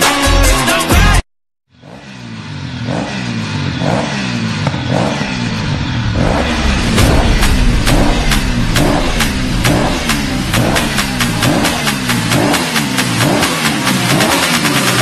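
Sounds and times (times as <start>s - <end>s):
low pitch sweeps and pulse: 5.2s - 13.3s
electronic music: 5.4s - 15.0s.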